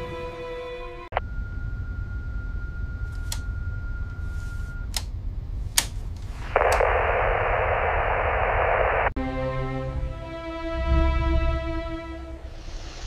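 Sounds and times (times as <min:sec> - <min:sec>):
music: 0:00.0 - 0:01.2, 0:09.2 - 0:12.8
steady high tone: 0:01.1 - 0:04.9
low rumble: 0:01.1 - 0:09.2, 0:09.8 - 0:13.0
sharp clicks: 0:03.1 - 0:03.5, 0:04.8 - 0:08.0
radio static burst: 0:06.3 - 0:09.2.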